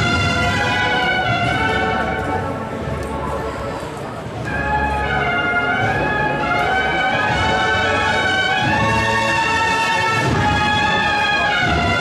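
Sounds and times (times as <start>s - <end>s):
drums: 0.0s - 2.5s, 5.8s - 12.0s
bugle melody: 0.0s - 2.6s, 4.4s - 12.0s.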